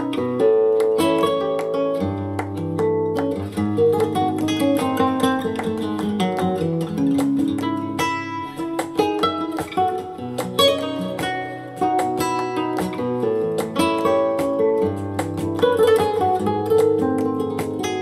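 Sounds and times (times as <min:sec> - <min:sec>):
acoustic guitar music on loudspeakers: 0:00.0 - 0:18.0.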